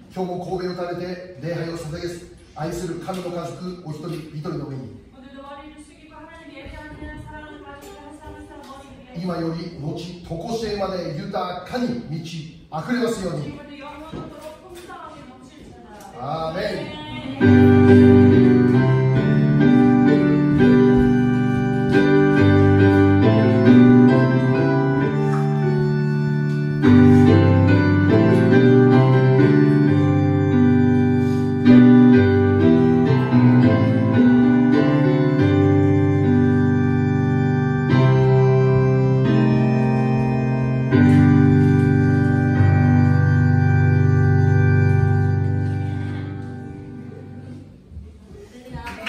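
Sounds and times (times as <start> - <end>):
electric keyboard organ chords: 17.4 - 47.8.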